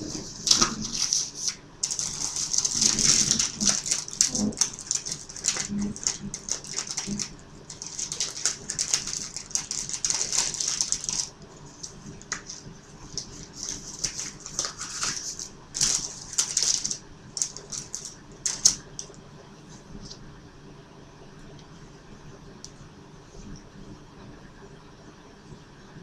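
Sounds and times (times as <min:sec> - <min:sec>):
crinkling and rustling: 0:00.0 - 0:19.2.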